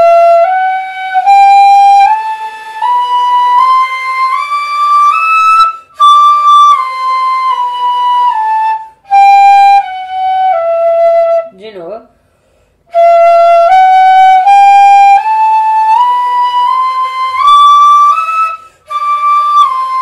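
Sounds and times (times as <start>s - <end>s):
player breathing: 12.2s - 12.9s
cane fife playing a scale: 16.4s - 20.0s.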